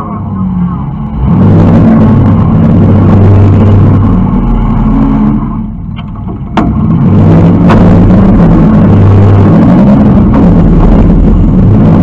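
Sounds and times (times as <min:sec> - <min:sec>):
car engine revving hard: 0:00.0 - 0:05.9, 0:06.6 - 0:12.0
sharp knocks: 0:06.0 - 0:06.9.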